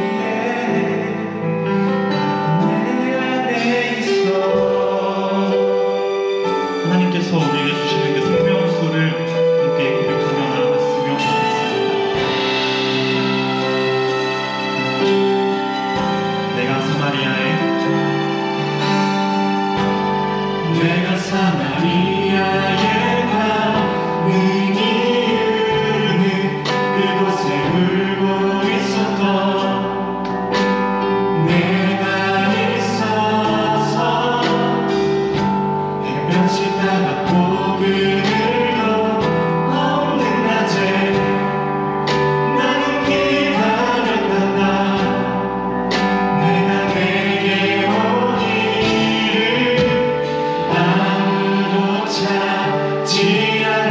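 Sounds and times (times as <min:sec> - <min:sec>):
keyboard accompaniment: 0:00.0 - 0:53.9
group singing worship song: 0:31.3 - 0:53.9.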